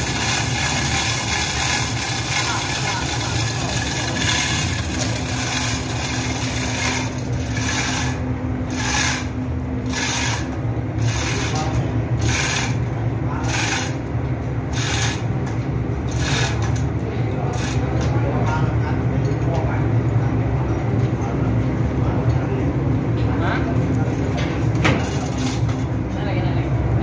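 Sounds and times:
rasping scraping noise: 0:00.0 - 0:12.8.

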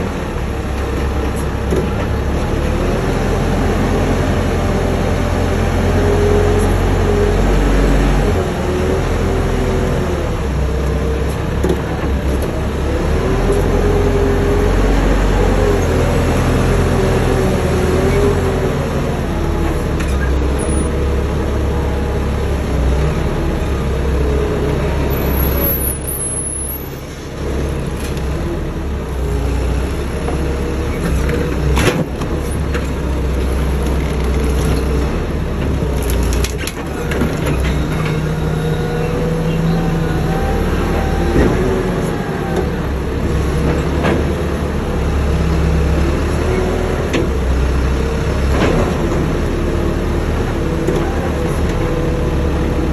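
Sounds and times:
heavy machine engine running: 0:00.0 - 0:52.9.

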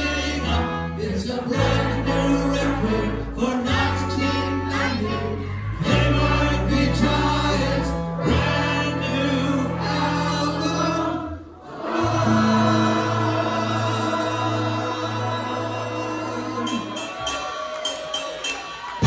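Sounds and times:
live rock band with horns: 0:00.0 - 0:11.0
group vocals singing: 0:00.0 - 0:17.2.

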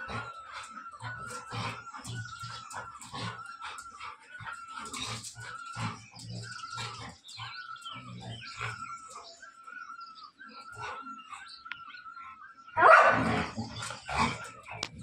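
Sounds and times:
dogs growling and snarling: 0:00.0 - 0:09.8, 0:12.8 - 0:15.0.

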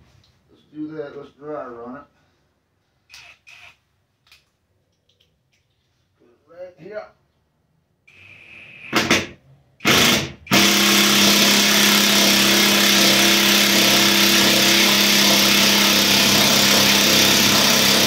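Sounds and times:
cordless drill motor running: 0:09.8 - 0:18.0.

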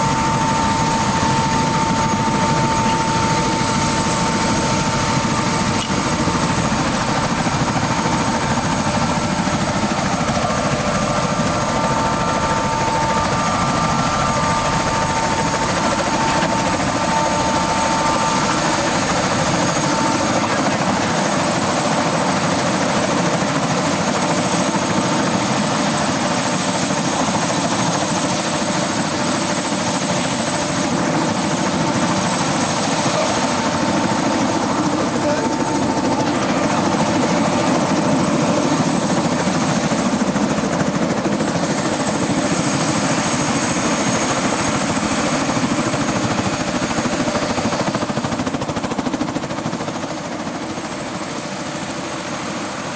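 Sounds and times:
high whine: 0:00.0 - 0:22.5
helicopter engine and rotor rushing: 0:00.0 - 0:52.9.

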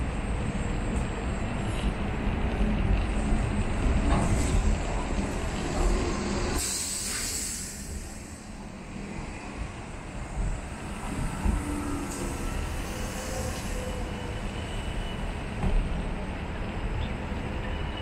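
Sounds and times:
buses and truck passing: 0:00.0 - 0:18.0
air brakes hissing: 0:06.5 - 0:08.5, 0:11.6 - 0:15.0.

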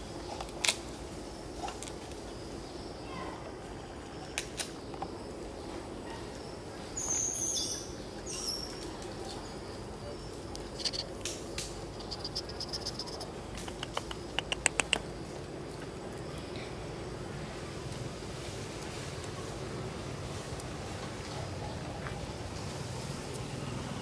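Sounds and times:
steady background hum: 0:00.0 - 0:24.0
ticks and sharp clicks: 0:10.8 - 0:15.1.

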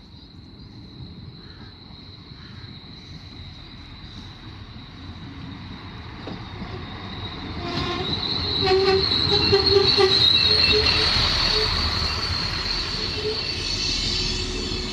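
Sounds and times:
passenger train passing: 0:00.3 - 0:14.9
wheel and brake squeal: 0:06.2 - 0:14.9.

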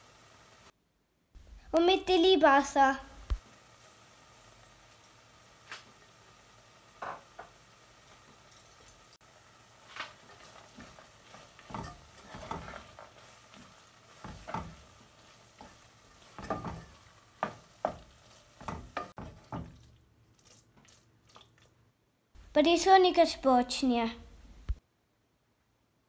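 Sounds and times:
mixture sizzling faintly: 0:00.0 - 0:00.8, 0:01.4 - 0:24.8
wooden spatula scraping a pan: 0:09.6 - 0:21.1.

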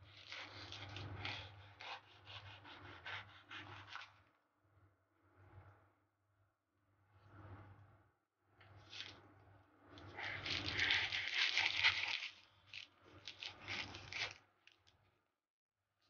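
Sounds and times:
knife cutting crisp pastry: 0:00.0 - 0:04.2, 0:10.0 - 0:14.4.

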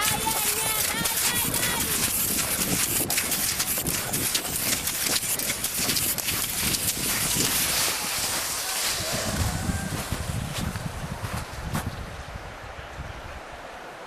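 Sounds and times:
steady rushing hiss: 0:00.0 - 0:11.5
skis crunching and scraping snow: 0:00.0 - 0:11.9.

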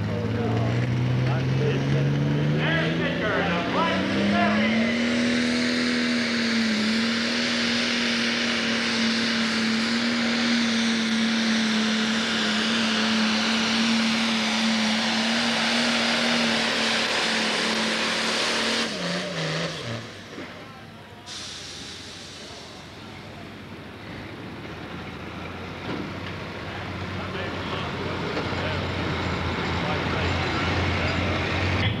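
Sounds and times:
tractor engine under load: 0:00.0 - 0:32.0.

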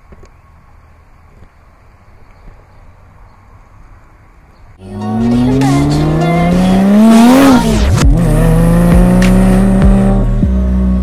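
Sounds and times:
car engine revving: 0:04.8 - 0:11.0
low drone with thudding beat: 0:06.5 - 0:11.0.

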